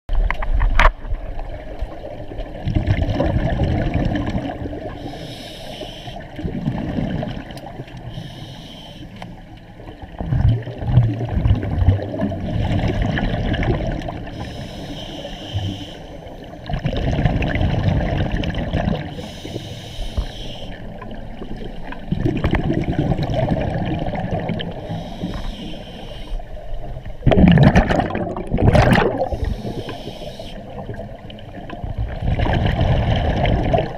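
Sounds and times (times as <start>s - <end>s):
exhaled bubbles rumbling underwater: 0.1s - 33.9s
regulator inhale hiss: 4.9s - 6.4s, 8.0s - 9.4s, 14.2s - 16.7s, 19.1s - 22.1s, 24.6s - 26.6s, 29.2s - 30.9s.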